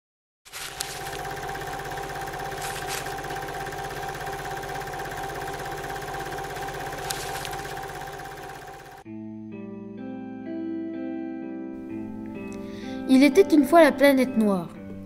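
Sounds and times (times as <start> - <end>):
film projector clattering: 0.5 - 9.0
projector hum: 0.5 - 9.0.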